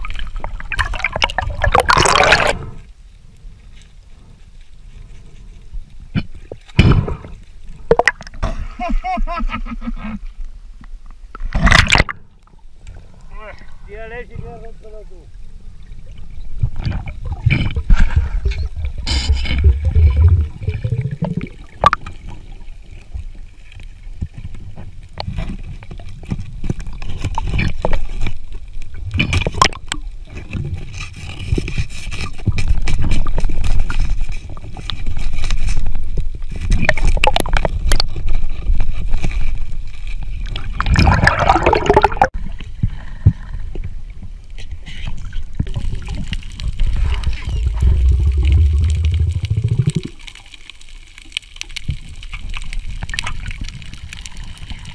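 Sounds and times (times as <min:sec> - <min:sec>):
underwater rumble and gurgling: 0:00.0 - 0:08.9, 0:09.9 - 0:54.9
underwater clicks: 0:07.9 - 0:08.4, 0:11.3 - 0:12.2, 0:45.6 - 0:54.9.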